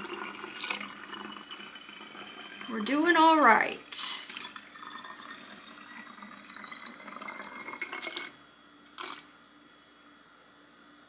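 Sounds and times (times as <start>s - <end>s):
liquid pouring into plastic bottle: 0.0s - 2.9s, 4.2s - 8.4s, 9.0s - 9.3s.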